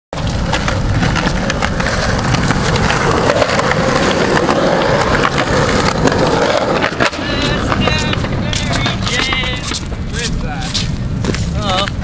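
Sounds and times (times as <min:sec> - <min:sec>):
skateboard wheels rolling on concrete: 0:00.1 - 0:12.0
wheels clicking over cracks: 0:00.2 - 0:12.0.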